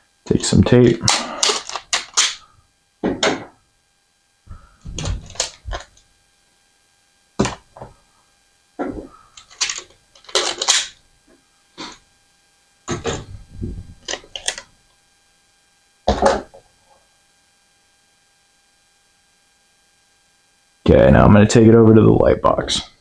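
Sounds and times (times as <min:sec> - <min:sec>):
tape ripping off dispenser: 0:01.0 - 0:02.5, 0:05.0 - 0:06.0, 0:09.4 - 0:11.0
tape dispenser knocks: 0:04.8 - 0:05.9, 0:07.4 - 0:07.9.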